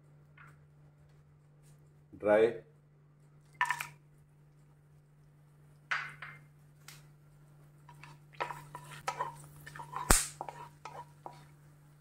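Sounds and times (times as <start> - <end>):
spatula scraping wok: 7.9 - 11.6.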